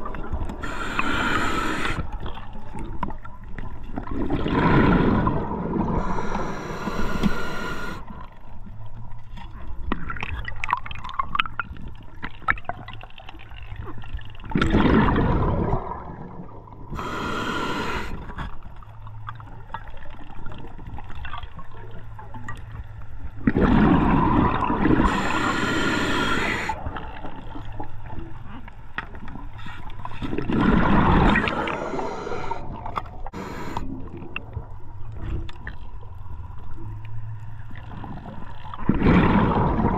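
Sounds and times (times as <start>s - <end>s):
exhaled bubbles gurgling underwater: 0.0s - 35.9s, 37.6s - 39.9s
regulator inhalation hiss: 0.6s - 2.1s, 6.0s - 8.1s, 17.0s - 18.2s, 25.0s - 26.8s, 31.4s - 32.7s, 33.3s - 33.9s.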